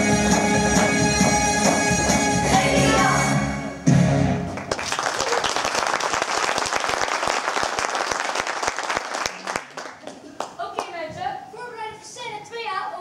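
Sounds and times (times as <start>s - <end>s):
stage music: 0.0s - 7.4s
audience applause: 4.5s - 10.6s.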